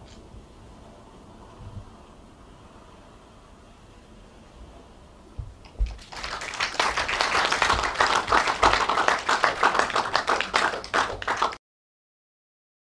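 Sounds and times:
low thump: 5.4 - 6.0
audience applauding: 5.7 - 11.6.

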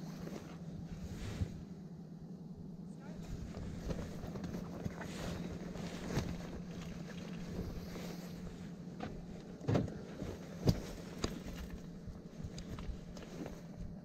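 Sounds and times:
steady low hum: 0.0 - 14.0
rustling and soft knocks: 3.2 - 14.0.

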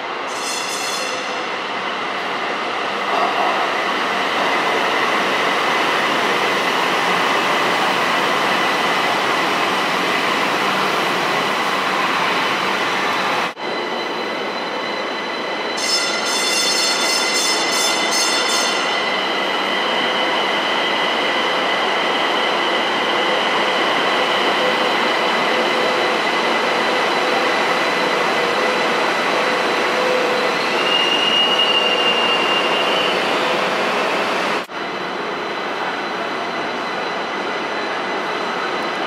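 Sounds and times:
train wheels rumbling on rail: 0.0 - 39.0
high wheel squeal: 0.3 - 1.5, 13.6 - 26.0, 29.4 - 33.7.

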